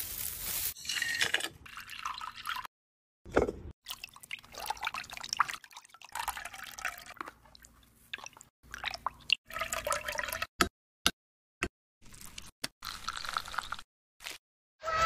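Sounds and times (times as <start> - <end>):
liquid pouring into a glass cup: 1.7 - 2.7, 3.9 - 7.3, 8.7 - 10.5.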